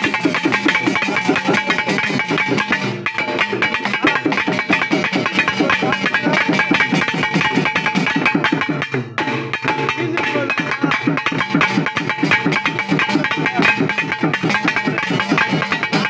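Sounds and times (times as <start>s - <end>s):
fast hand drums: 0.0s - 16.0s.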